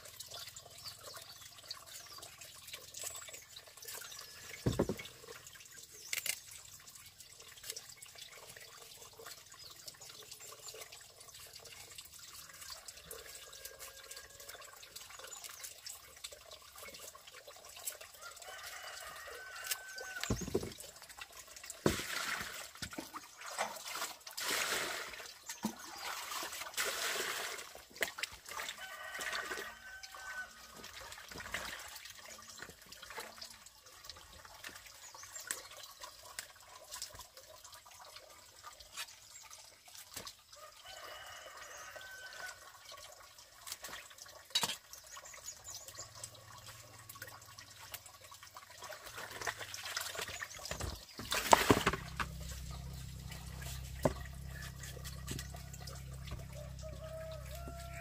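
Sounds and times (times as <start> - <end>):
water trickling and splashing: 0.0 - 58.0
small knocks: 4.6 - 5.1, 20.2 - 20.8
low steady hum: 51.6 - 58.0.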